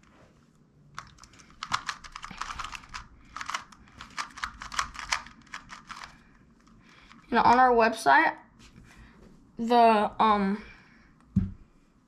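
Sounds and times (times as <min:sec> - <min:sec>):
puzzle cube clicking and rattling: 0:01.0 - 0:07.7.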